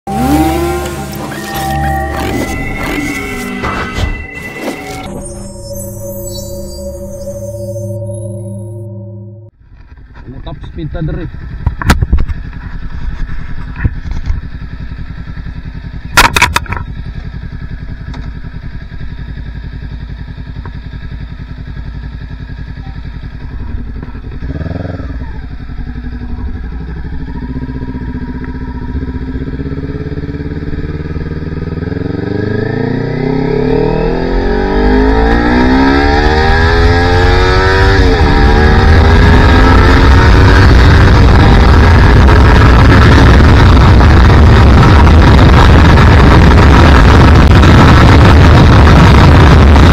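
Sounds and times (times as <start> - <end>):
motorcycle engine accelerating: 0.0 - 49.9
wind noise: 35.8 - 49.9.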